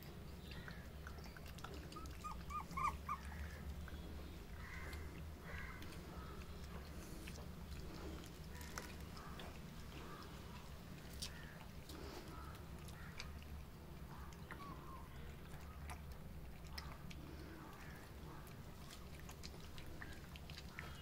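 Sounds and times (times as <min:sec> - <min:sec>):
puppies whimpering squeaks: 0:01.8 - 0:03.6.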